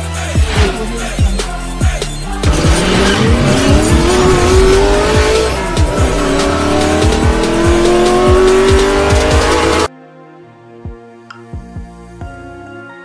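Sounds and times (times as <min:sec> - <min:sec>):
electronic hip-hop music: 0:00.0 - 0:09.9
racing car engine revving: 0:02.2 - 0:09.9.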